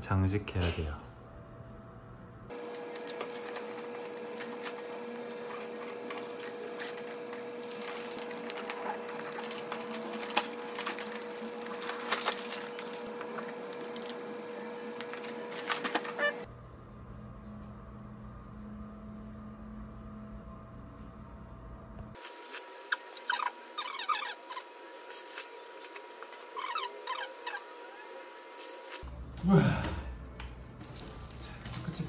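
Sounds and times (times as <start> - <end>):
wrapping paper rustling: 2.6 - 14.1, 30.4 - 32.0.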